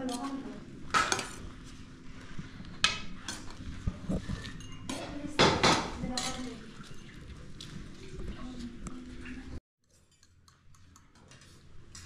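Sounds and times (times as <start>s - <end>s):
spoons clinking on ceramic plates: 4.4s - 7.2s, 9.8s - 12.0s.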